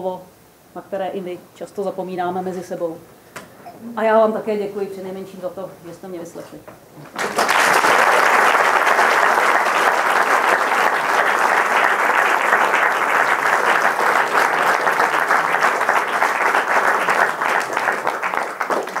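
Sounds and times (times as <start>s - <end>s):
audience applauding: 7.1s - 19.0s.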